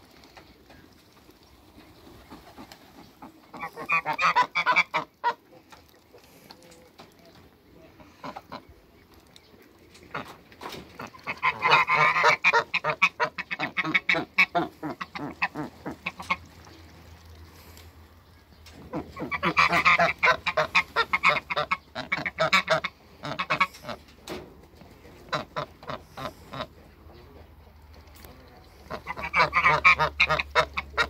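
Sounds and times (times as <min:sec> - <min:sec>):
geese honking: 0:02.4 - 0:05.6, 0:10.0 - 0:16.8, 0:18.8 - 0:24.1, 0:25.2 - 0:26.9, 0:28.7 - 0:31.0.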